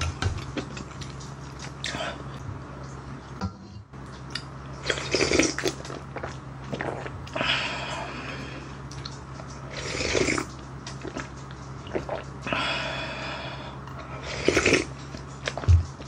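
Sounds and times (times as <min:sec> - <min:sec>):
slurping hot broth: 0:09.7 - 0:10.5, 0:14.2 - 0:14.9.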